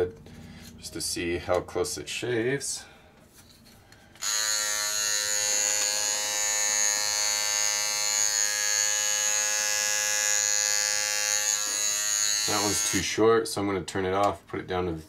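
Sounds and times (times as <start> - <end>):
electric trimmer buzzing: 4.2 - 13.0.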